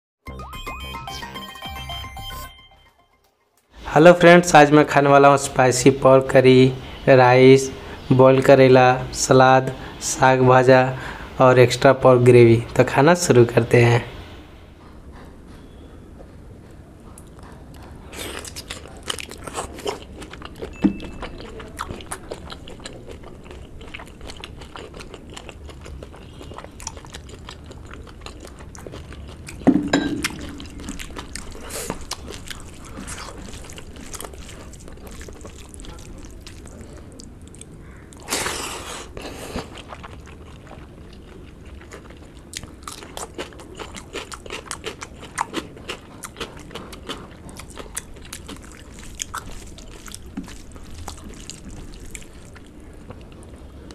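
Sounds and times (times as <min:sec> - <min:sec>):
person chewing and smacking lips: 0:15.6 - 0:53.9.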